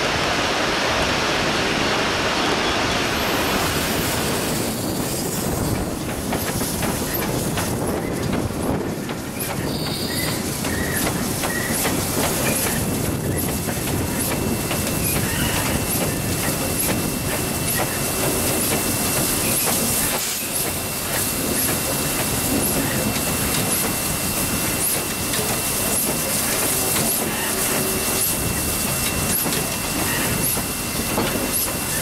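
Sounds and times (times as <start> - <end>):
steam hiss: 9.4 - 32.0.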